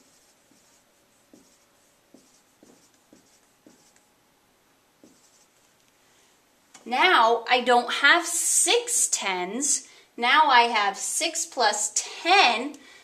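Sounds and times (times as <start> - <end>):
marker tapping on whiteboard: 0.0 - 4.0, 5.0 - 5.4.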